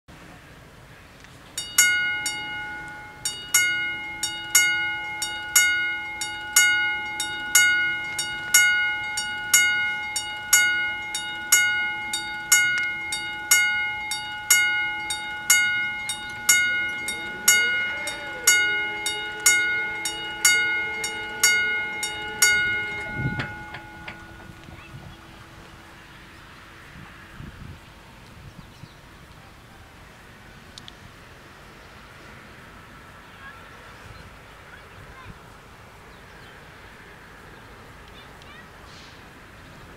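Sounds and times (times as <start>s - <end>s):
level crossing bells clanging: 1.6s - 26.4s
barrier motor hum: 1.9s - 26.7s.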